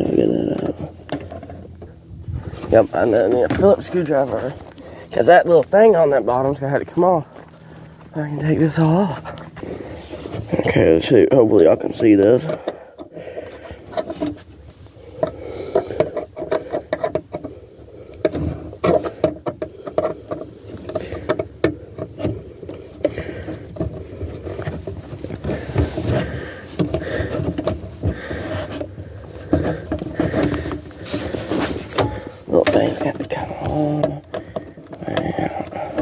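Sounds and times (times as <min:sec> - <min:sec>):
clothing rustling on microphone: 0:24.4 - 0:32.6.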